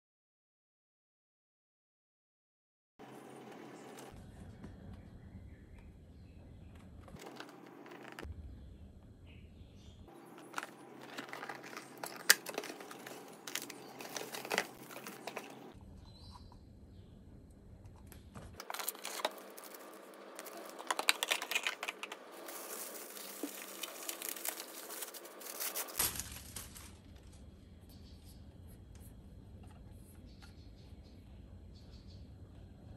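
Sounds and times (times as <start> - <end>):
paper wrapping crinkling: 10.1 - 15.8, 18.6 - 27.4.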